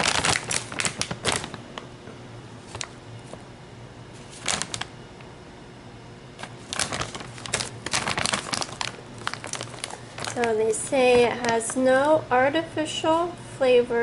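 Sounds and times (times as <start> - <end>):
plastic bag crinkling: 0.0 - 1.8, 2.6 - 3.4, 4.2 - 4.9, 6.4 - 12.0.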